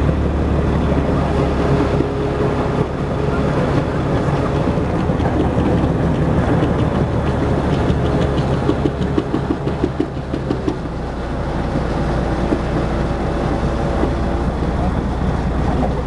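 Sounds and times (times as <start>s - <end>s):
tracked vehicle diesel engine rumble: 0.0s - 16.0s
rapid clicking rattle: 4.2s - 11.2s.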